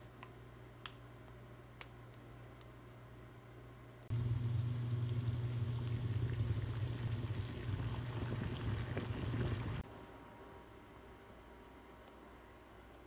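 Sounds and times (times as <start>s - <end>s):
water boiling in a pot: 4.1s - 9.8s.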